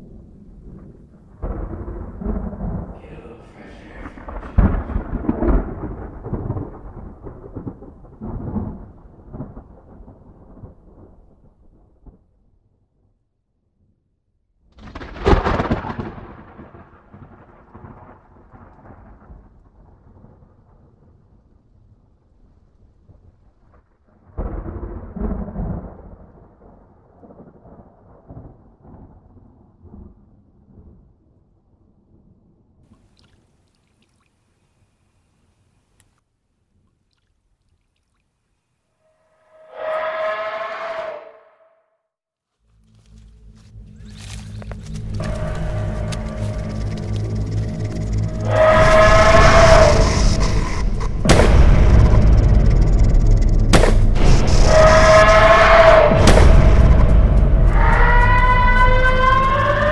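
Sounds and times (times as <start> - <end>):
loud thunder crack: 0.0 - 12.2, 14.8 - 20.9, 24.2 - 30.1, 45.2 - 59.9
thunder rumbling: 0.0 - 12.8, 14.7 - 31.3, 43.1 - 59.9.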